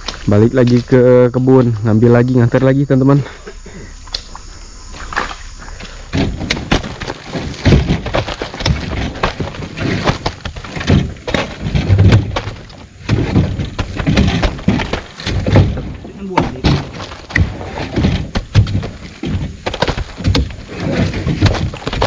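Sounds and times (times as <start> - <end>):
heavy fruit bunches thudding down: 5.2 - 22.0.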